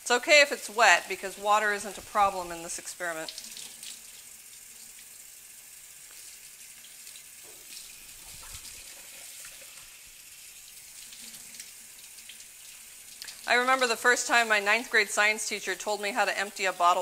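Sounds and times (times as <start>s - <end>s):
faucet running into a sink: 1.0s - 14.9s
bottle being rinsed: 1.1s - 5.1s, 5.9s - 14.8s.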